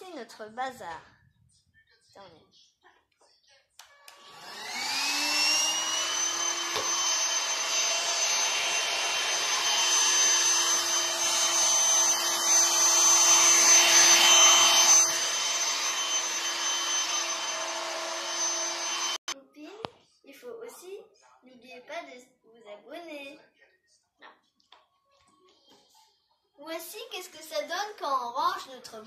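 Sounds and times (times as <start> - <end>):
handheld vacuum cleaner whine: 4.0 - 19.4.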